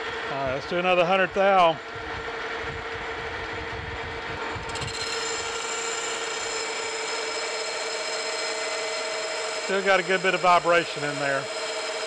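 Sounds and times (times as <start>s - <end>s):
lathe whine: 1.8s - 12.0s.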